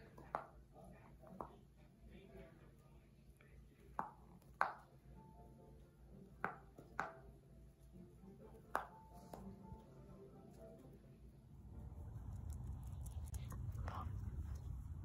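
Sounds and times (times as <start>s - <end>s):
dog teeth clicking on ball: 12.2s - 14.7s.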